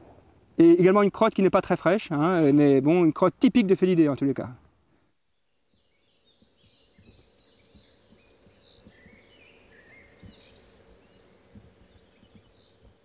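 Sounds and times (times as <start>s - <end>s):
small birds chirping: 5.0s - 13.0s
soft low knocks and rustles: 10.0s - 13.0s.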